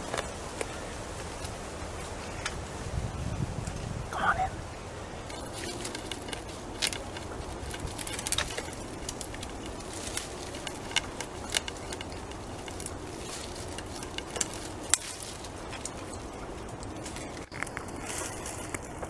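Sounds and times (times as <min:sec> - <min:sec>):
background hiss: 0:00.0 - 0:19.0
beaver gnawing and chewing: 0:05.0 - 0:19.0.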